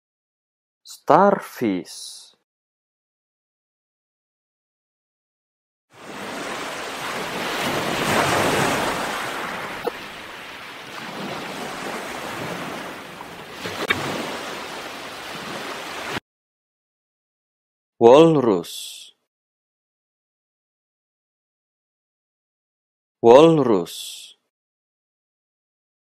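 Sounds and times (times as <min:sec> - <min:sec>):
ocean surf washing over sand: 0:06.0 - 0:16.2.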